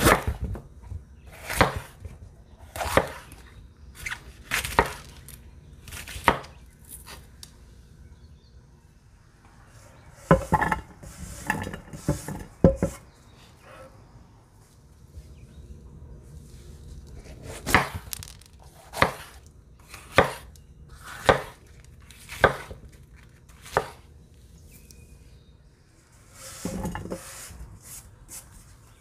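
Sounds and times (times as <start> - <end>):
knife chopping on wooden board: 0.0 - 0.6, 1.3 - 2.0, 2.7 - 3.4, 6.0 - 6.6, 18.8 - 21.6, 22.2 - 22.8, 23.6 - 24.0.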